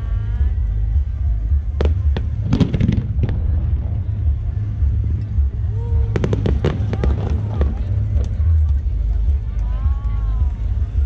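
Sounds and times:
steady low rumble: 0:00.0 - 0:11.0
fireworks bangs: 0:01.6 - 0:08.6.

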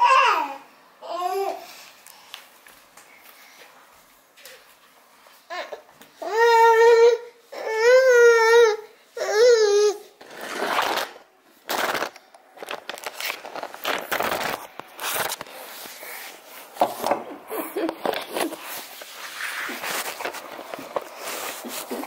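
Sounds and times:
baby crying: 0:05.5 - 0:10.1
camera handling rustling: 0:11.7 - 0:15.6.

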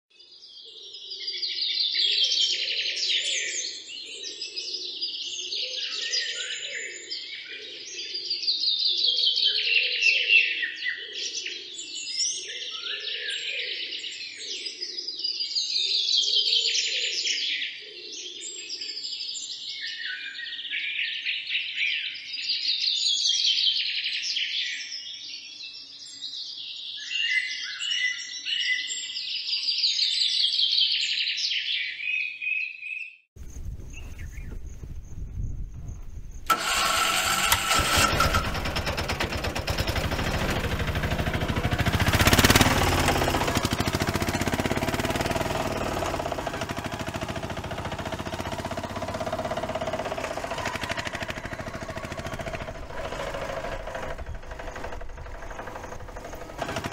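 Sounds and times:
birds chirping and singing: 0:00.2 - 0:56.9.

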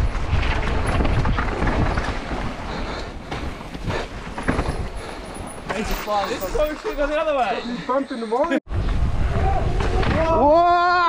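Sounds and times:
wind rushing over microphone: 0:00.0 - 0:06.7, 0:08.7 - 0:10.9
bike rattling over bumps: 0:00.0 - 0:07.6
tyres rolling over dirt: 0:00.0 - 0:07.7.

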